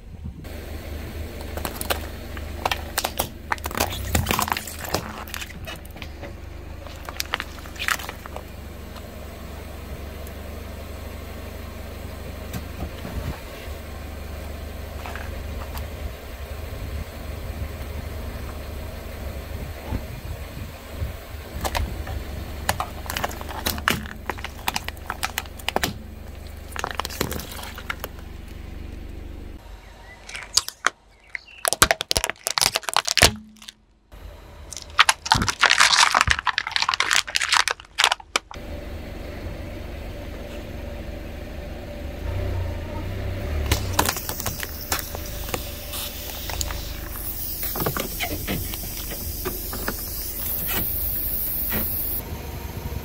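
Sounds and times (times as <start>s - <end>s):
car engine humming: 0.0s - 53.0s
crunching under car tyre: 1.2s - 9.2s, 21.3s - 33.8s, 34.7s - 38.6s, 43.5s - 52.2s.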